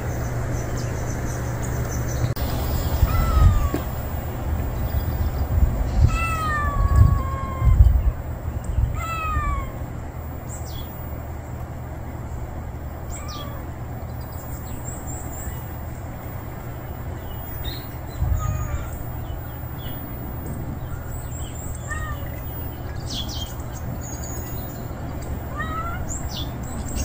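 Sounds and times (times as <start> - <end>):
cat meowing: 3.0 - 4.0, 5.9 - 8.2, 8.9 - 9.9, 13.1 - 13.7, 18.2 - 19.0, 21.7 - 22.5, 25.5 - 27.0.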